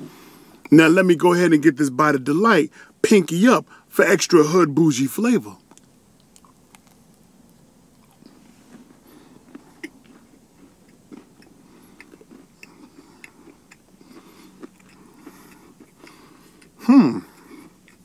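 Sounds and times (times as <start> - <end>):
person chewing: 5.6 - 18.0.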